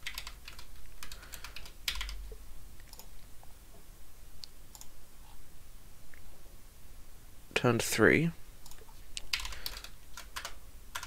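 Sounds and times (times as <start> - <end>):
typing on a keyboard: 0.0 - 2.2, 8.7 - 11.0.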